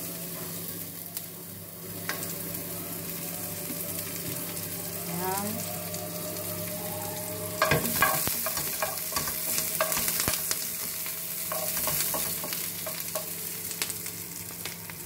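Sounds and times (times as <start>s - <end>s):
oil sizzling in a pan: 0.0s - 15.0s
spatula knocking against pan: 7.6s - 10.3s.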